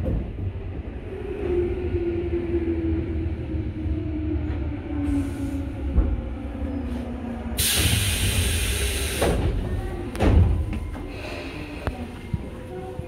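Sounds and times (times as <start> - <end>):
electric train rumble: 0.0 - 13.0
compressed air hiss: 7.6 - 9.4.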